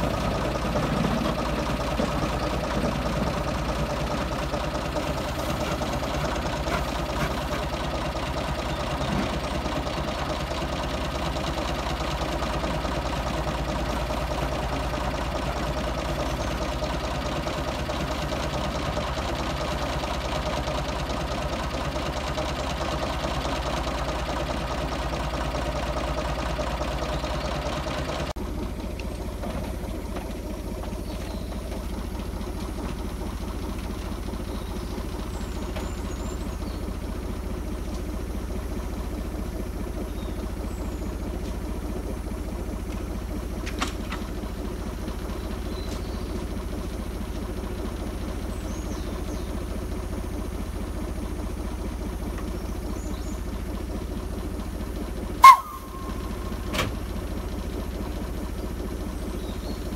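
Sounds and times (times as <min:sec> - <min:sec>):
diesel locomotive engine idling: 0:00.0 - 0:59.9
faint high chirps: 0:55.4 - 0:56.6.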